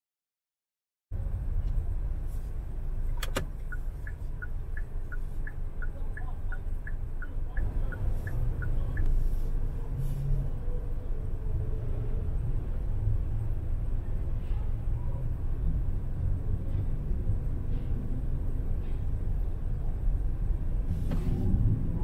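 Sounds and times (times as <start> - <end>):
low rumble of street traffic: 1.1 - 22.0
sharp click: 3.2 - 3.8.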